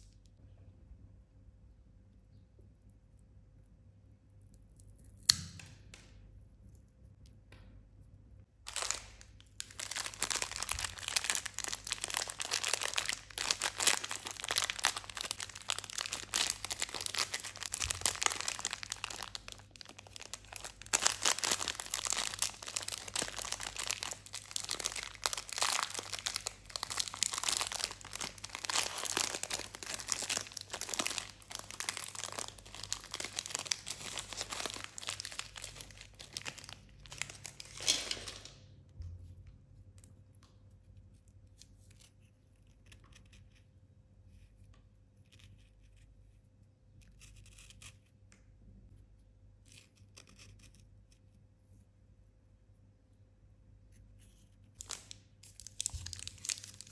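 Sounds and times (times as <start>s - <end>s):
plastic wrapper crinkling: 8.6s - 38.8s, 54.8s - 56.9s
wrapper tearing open: 8.7s - 38.7s, 54.8s - 56.9s.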